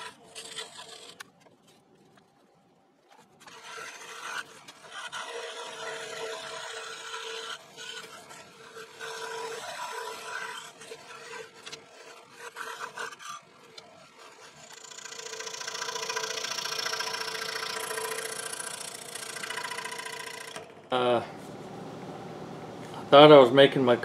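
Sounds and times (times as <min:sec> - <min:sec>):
scroll saw cutting wood: 0:00.0 - 0:01.2, 0:03.4 - 0:24.0.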